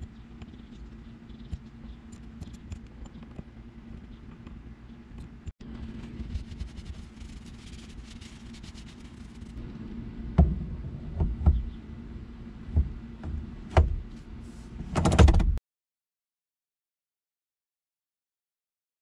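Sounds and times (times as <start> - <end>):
faint low hum: 0.0 - 15.6
sharp knocks and clicks: 0.4 - 5.5
cloth rubbing on metal: 5.8 - 9.6.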